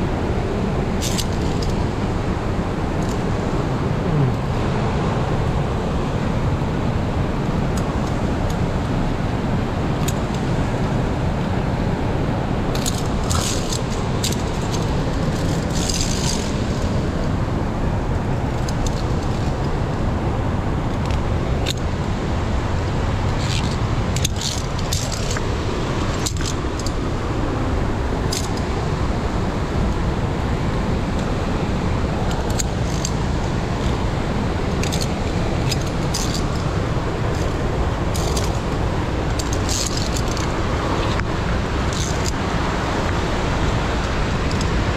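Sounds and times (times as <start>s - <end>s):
steady loud rushing noise: 0.0s - 44.9s
carabiners clinking on steel cable: 1.0s - 1.8s, 3.0s - 3.2s, 12.7s - 17.0s, 18.5s - 19.8s, 23.2s - 27.1s, 28.3s - 28.7s, 32.3s - 44.9s.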